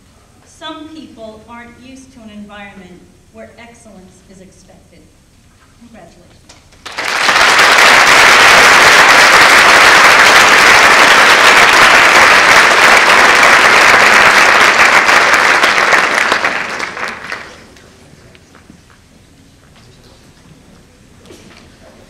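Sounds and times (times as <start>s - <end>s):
audience applauding: 6.8s - 17.8s.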